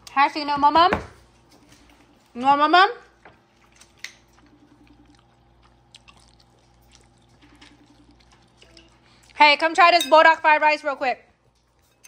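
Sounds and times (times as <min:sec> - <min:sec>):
low room hum: 0:00.0 - 0:12.0
soft eating clicks: 0:03.4 - 0:09.4.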